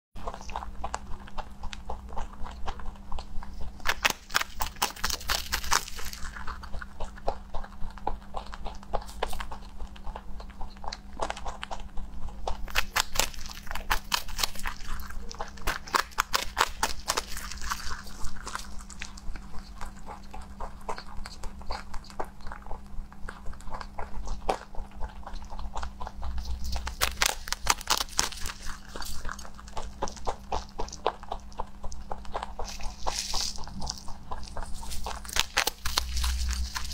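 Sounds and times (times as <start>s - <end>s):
rabbit crunching hay: 0.2s - 36.9s.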